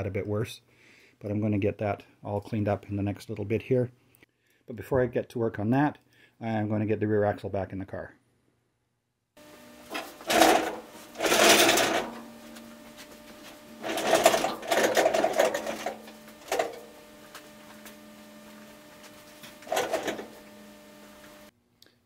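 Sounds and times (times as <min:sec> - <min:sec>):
steady low hum: 0:09.4 - 0:21.5
rapid mechanical rattling: 0:09.9 - 0:12.9, 0:13.8 - 0:18.1, 0:19.2 - 0:20.4.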